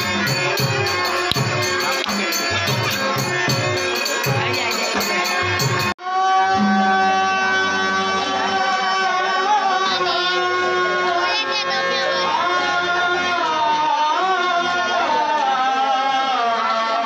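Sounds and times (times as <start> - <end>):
drumming and jingling percussion: 0.0 - 6.0
harmonium: 0.0 - 17.0
man singing loudly: 6.0 - 11.3, 12.3 - 17.0.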